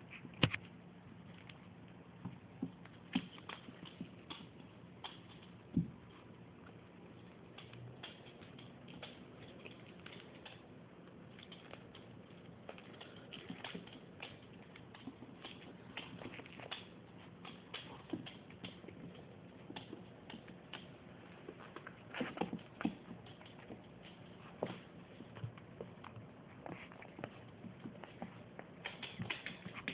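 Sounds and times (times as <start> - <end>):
faint steady hum: 0.0 - 29.9
puppy claws clicking on wood floor: 2.2 - 29.9.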